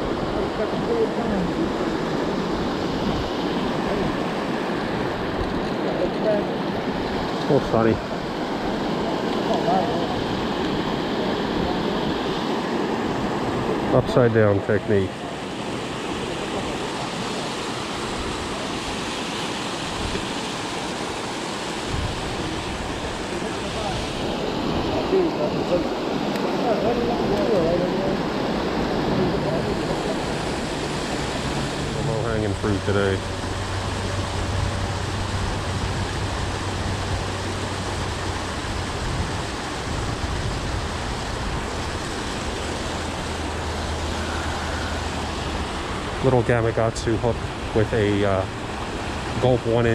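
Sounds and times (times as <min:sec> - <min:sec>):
water rushing over dam: 0:00.0 - 0:49.9.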